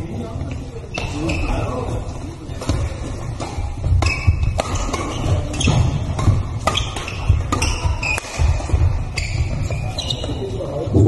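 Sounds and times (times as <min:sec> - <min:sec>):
shoes squeaking on court floor: 0:00.4 - 0:10.8
rackets striking shuttlecock: 0:02.6 - 0:08.9.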